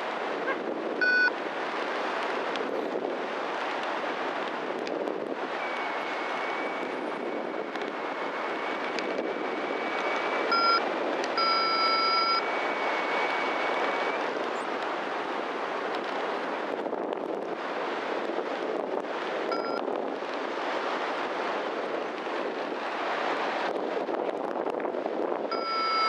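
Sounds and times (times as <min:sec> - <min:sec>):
wind rushing over microphone: 0:00.0 - 0:26.0
short electronic beeps: 0:01.0 - 0:01.3, 0:10.4 - 0:10.8, 0:11.4 - 0:14.2, 0:19.5 - 0:19.8, 0:25.5 - 0:26.0
thin high tone: 0:11.4 - 0:14.2, 0:25.5 - 0:26.0.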